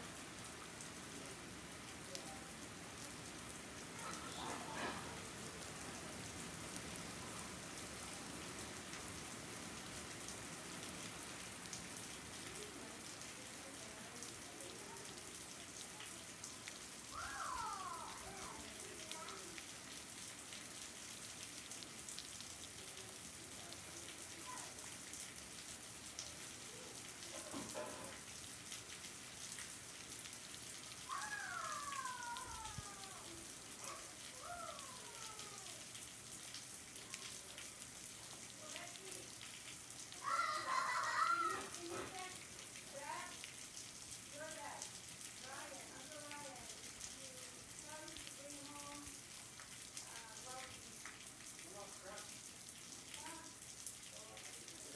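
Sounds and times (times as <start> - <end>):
steady rain falling: 0.0 - 54.9
high falling calls: 31.1 - 33.2, 40.2 - 41.6.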